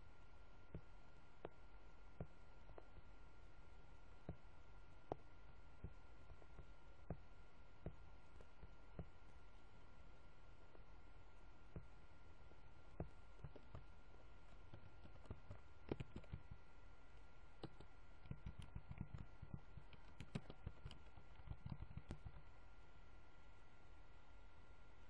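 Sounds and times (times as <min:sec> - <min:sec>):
faint steady hum: 0:00.0 - 0:25.0
computer mouse clicking: 0:12.6 - 0:22.6.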